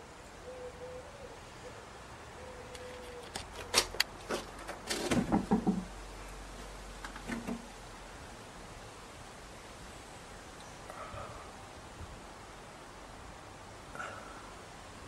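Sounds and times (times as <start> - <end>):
irregular clicks and knocks: 3.2 - 5.9, 7.0 - 7.7.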